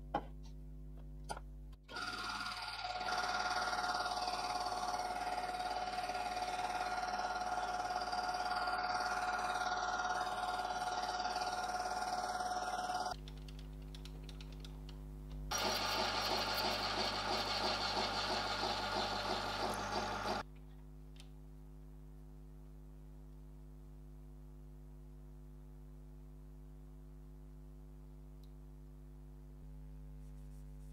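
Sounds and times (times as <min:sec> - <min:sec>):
lathe motor hum: 0:01.9 - 0:13.2, 0:15.5 - 0:20.4
lathe tool scraping metal: 0:15.6 - 0:20.4.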